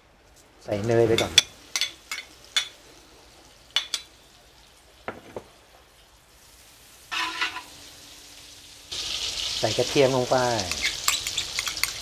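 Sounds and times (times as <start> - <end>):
butter sizzling in a wok: 1.0 - 12.0
metal spatula tapping and scraping: 1.1 - 2.8, 7.1 - 7.7, 10.6 - 12.0.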